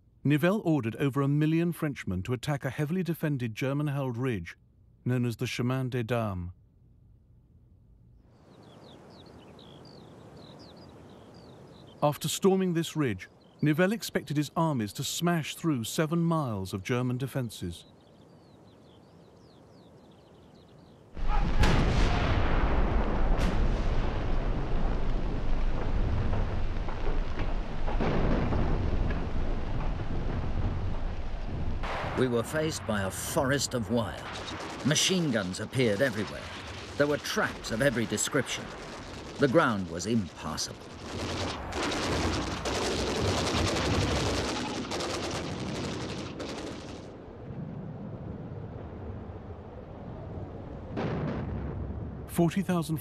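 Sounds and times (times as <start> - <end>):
faint birdsong: 7.1 - 21.6
sharp gunfire cracks: 21.2 - 30.2, 31.8 - 47.1
artillery barrage rumble: 21.2 - 48.6, 50.6 - 52.7
rapid machine-gun fire: 34.1 - 47.1.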